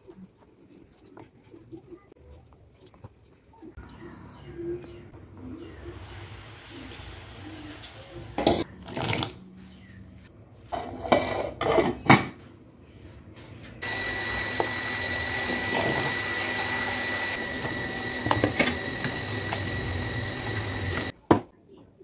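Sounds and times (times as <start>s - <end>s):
soup boiling hiss: 5.5s - 8.7s.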